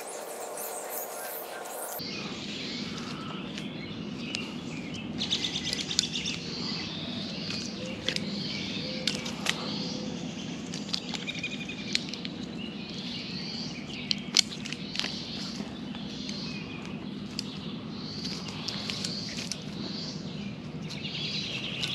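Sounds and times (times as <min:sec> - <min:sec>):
birds chirping: 0:00.0 - 0:21.9
outdoor background hiss: 0:00.0 - 0:21.9
rope and metal hardware clicking: 0:05.3 - 0:06.5, 0:07.4 - 0:13.1, 0:18.2 - 0:20.0.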